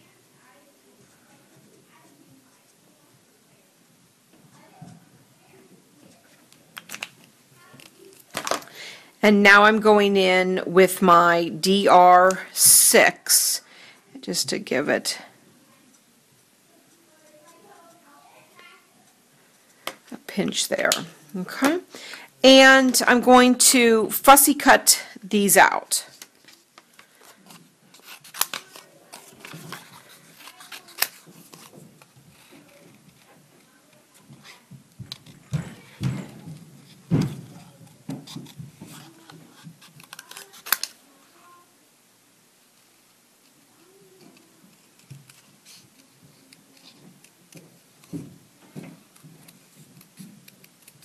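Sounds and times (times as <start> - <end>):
paper rustling: 26.1 - 36.0, 36.8 - 41.0, 44.1 - 48.3
scissors snipping paper: 27.0 - 33.3, 38.3 - 41.0, 49.1 - 51.0
scissors snipping card: 27.5 - 31.7, 39.8 - 40.9.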